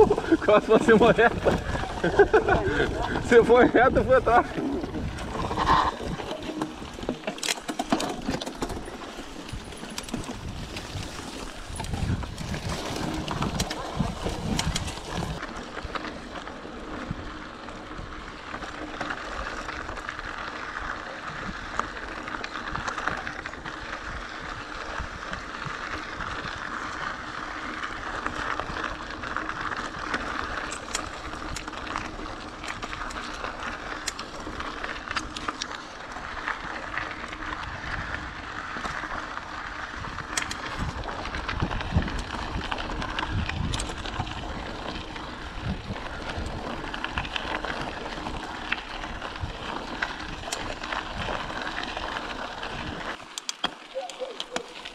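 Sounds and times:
wind rumbling on microphone: 0.0s - 7.2s, 8.2s - 53.2s
bicycle tyre and drivetrain noise: 0.0s - 54.9s
sharp clicks and rattles: 0.1s - 11.0s, 11.7s - 15.4s, 40.2s - 42.3s, 43.1s - 44.2s, 53.2s - 53.8s.

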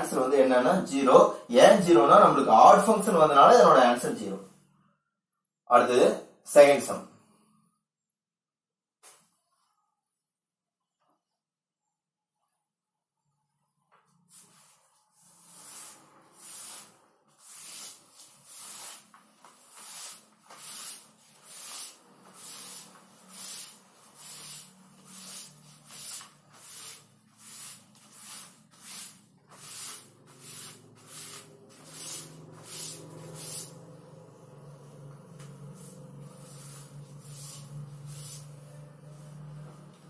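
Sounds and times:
cloth wiping blackboard: 14.1s - 40.0s.

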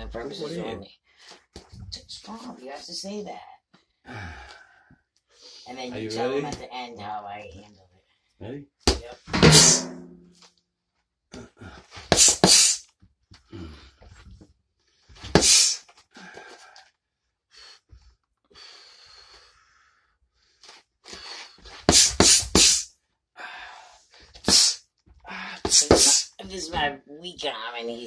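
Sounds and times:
faint breathing: 3.9s - 5.7s, 15.0s - 21.6s, 23.4s - 24.4s
punches smacking an arm: 12.1s - 12.8s, 15.3s - 15.8s, 21.9s - 22.8s.

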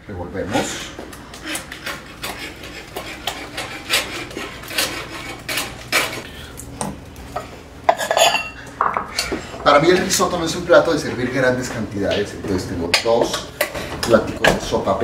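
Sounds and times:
spatula scraping pot: 0.6s - 6.3s.

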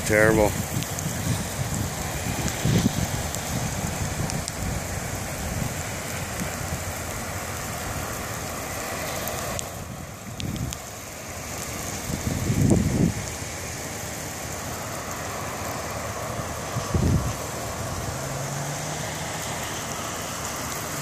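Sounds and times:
rain hiss: 0.0s - 21.0s
running floodwater: 0.0s - 21.0s
wind gusts buffeting microphone: 0.0s - 21.0s.

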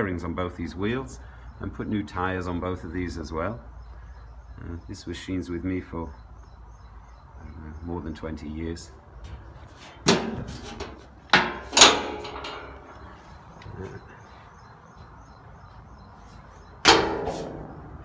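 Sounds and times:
knocks on metal housing: 9.3s - 13.0s, 16.8s - 18.0s.

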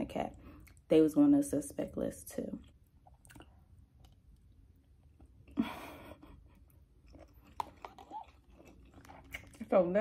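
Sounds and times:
person chewing noodles: 2.6s - 5.6s, 6.4s - 9.6s.

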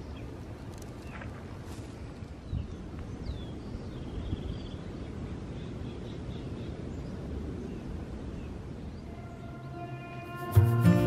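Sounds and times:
songbird chirps and trill: 2.3s - 11.0s.

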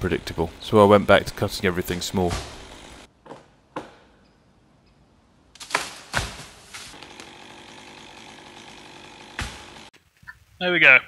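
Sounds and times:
chainsaw running: 0.0s - 3.1s, 6.7s - 9.9s.

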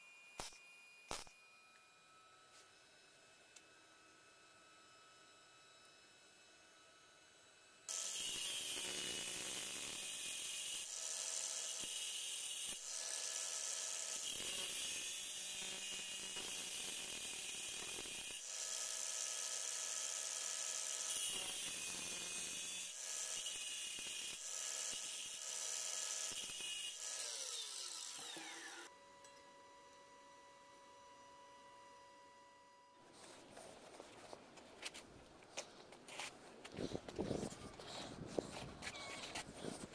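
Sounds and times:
angle grinder cutting steel: 0.4s - 1.4s, 7.9s - 29.9s.

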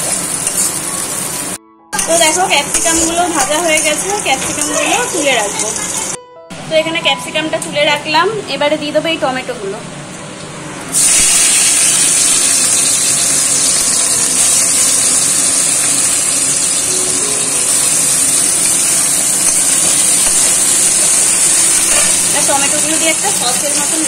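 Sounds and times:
tomatoes sizzling in hot oil: 0.0s - 6.2s, 11.0s - 24.0s.

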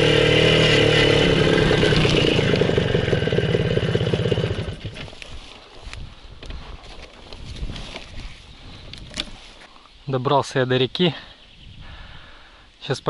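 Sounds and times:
motorcycle two-stroke engine: 0.0s - 5.2s.

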